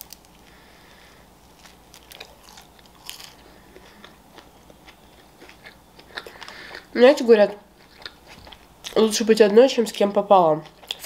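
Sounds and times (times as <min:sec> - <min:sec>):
chewing pizza crust: 0:01.5 - 0:09.2, 0:09.9 - 0:11.0.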